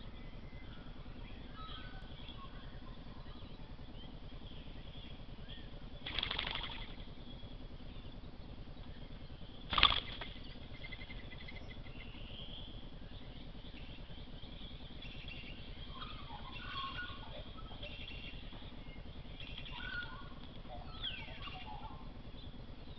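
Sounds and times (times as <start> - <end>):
birds chirping: 0.0 - 22.9
steady low hiss: 0.0 - 22.9.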